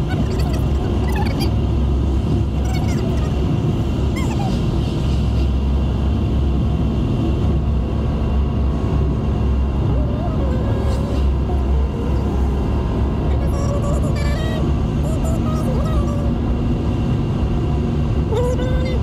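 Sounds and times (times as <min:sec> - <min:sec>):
car engine and road rumble: 0:00.0 - 0:19.0.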